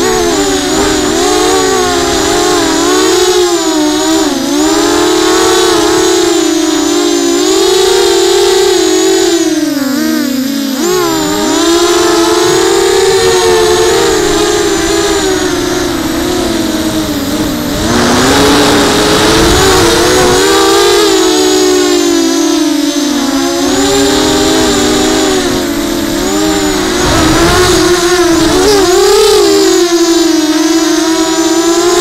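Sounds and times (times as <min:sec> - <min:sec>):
drone motors whining: 0:00.0 - 0:32.0
wind buffeting microphone: 0:10.9 - 0:21.2, 0:23.2 - 0:29.6.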